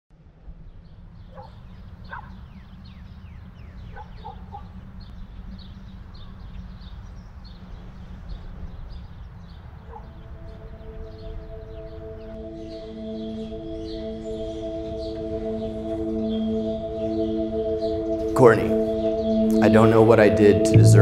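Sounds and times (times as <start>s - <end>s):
low rumble of wind: 0.1s - 13.1s
high bird chirps: 1.2s - 20.0s
held music chord: 9.5s - 21.0s.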